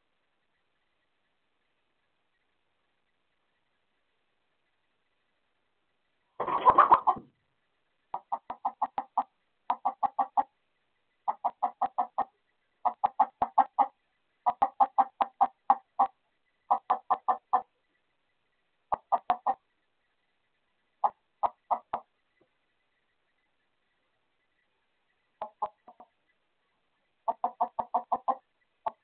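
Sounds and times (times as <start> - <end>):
hens clucking: 6.4 - 7.3, 8.1 - 10.5, 11.2 - 17.7, 18.9 - 19.6, 21.0 - 22.1, 25.4 - 26.2, 27.2 - 29.0.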